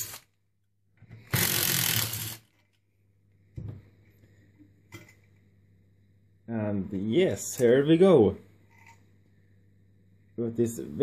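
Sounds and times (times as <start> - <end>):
cordless driver running: 1.3 - 2.4.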